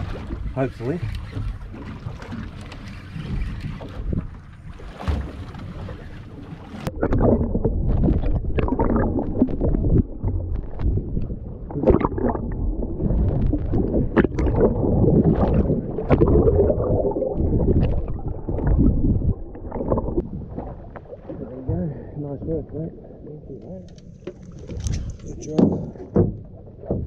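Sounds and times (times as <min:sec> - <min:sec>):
wind on microphone: 0:00.0 - 0:04.8, 0:06.8 - 0:20.6, 0:24.6 - 0:26.0
muffled underwater rushing and gurgling: 0:00.0 - 0:27.0.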